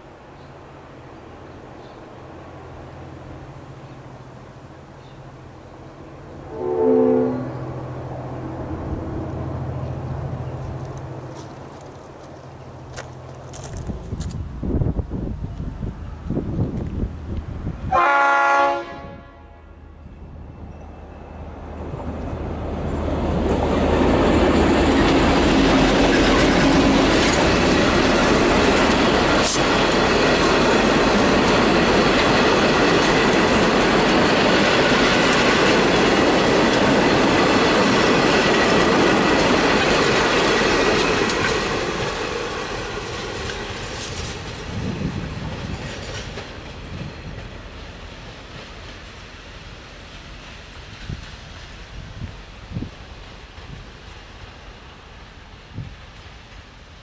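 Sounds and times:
train horn: 6.4s - 7.9s, 17.9s - 20.0s
train wheels clattering over rail joints: 22.7s - 55.1s.

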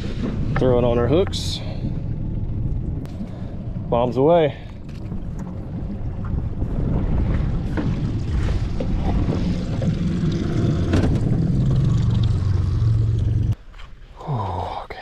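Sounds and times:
outboard motor humming: 0.0s - 13.6s
water noise: 0.0s - 13.6s
wind: 0.0s - 15.0s.

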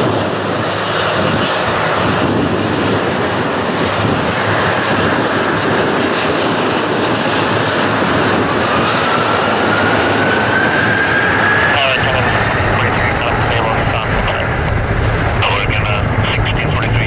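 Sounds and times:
jet engine whine rising: 0.0s - 17.0s
jet engines roaring: 0.0s - 17.0s.

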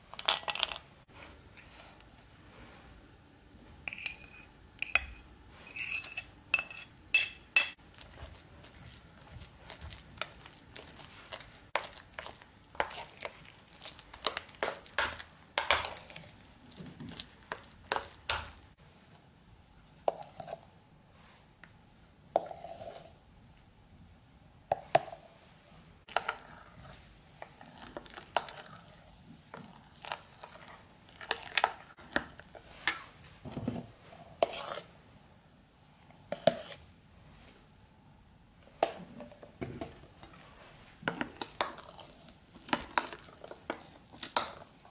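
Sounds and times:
metal spoon scraping a bowl: 3.9s - 7.8s, 34.4s - 34.9s.

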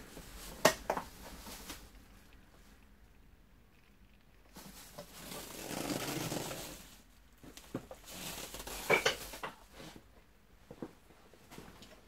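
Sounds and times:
vacuum cleaner body rustling: 4.6s - 7.0s.

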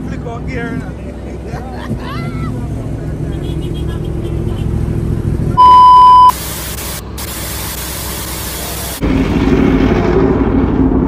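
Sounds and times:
low vehicle noise: 0.0s - 11.0s
electronic beep: 5.6s - 6.4s
static hiss: 6.2s - 9.0s.

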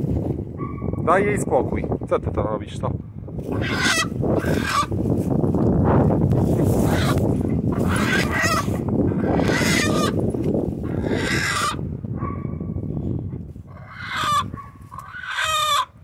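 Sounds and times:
hen squawking: 3.5s - 4.9s, 6.8s - 10.2s, 10.8s - 11.8s, 13.7s - 15.9s.

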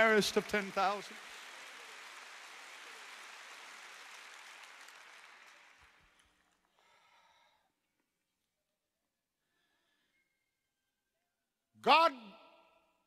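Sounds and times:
audience applause: 0.0s - 7.0s.

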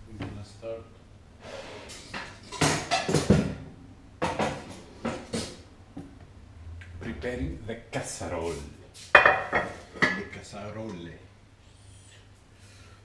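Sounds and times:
dishes and cookware clattering: 1.9s - 3.6s, 4.2s - 5.6s, 9.1s - 10.3s.

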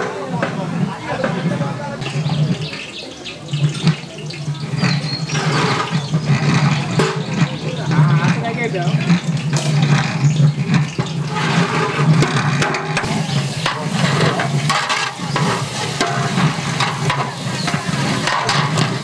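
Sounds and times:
ladle scraping and knocking pot: 0.0s - 19.0s
onions sizzling in oil: 3.4s - 19.0s.

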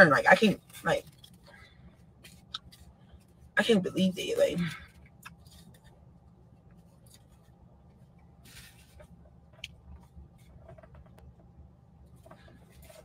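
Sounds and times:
faint low hum: 0.0s - 13.0s
faint rustle: 6.7s - 9.3s.

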